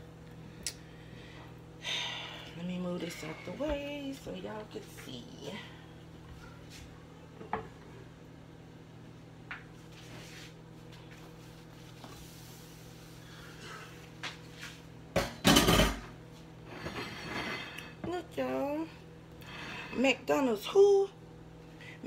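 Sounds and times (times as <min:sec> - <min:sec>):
dishes clattering: 0:15.2 - 0:16.1
kitchenware knocking: 0:15.2 - 0:16.1.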